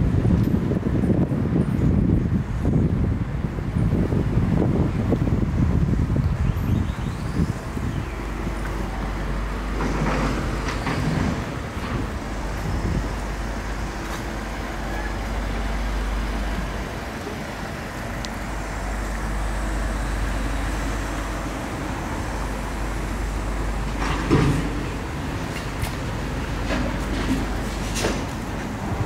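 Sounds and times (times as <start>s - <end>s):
rumble of passing cars: 0.0s - 29.0s.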